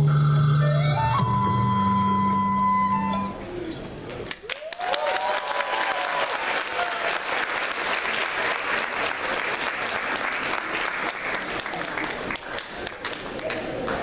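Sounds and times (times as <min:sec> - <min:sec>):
music: 0:00.0 - 0:03.4
audience applauding: 0:04.2 - 0:14.0
person cheering: 0:04.5 - 0:07.2.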